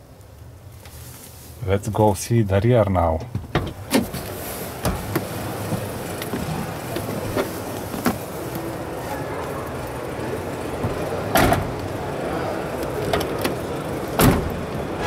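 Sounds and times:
exhibition hall din: 3.4s - 15.0s.

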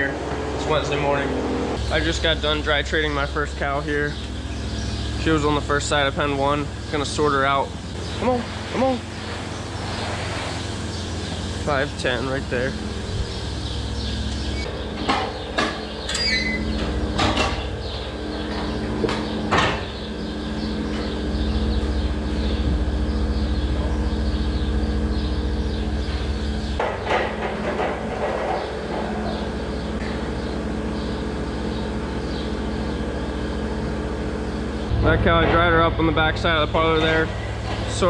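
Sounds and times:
barn machinery humming: 0.0s - 38.0s
metal gates clanking: 14.5s - 17.8s.

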